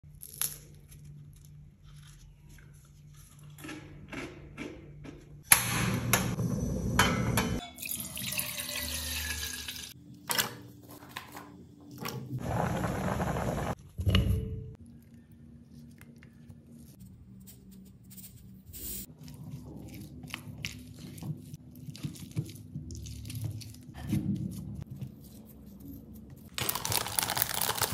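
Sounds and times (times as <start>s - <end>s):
kitchen water running: 7.7s - 10.0s, 12.4s - 13.8s.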